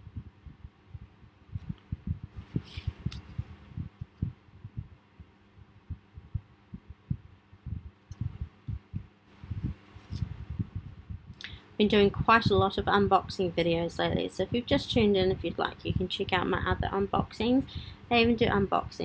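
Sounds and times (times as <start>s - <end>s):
fan wind buffeting microphone: 0.0s - 19.0s.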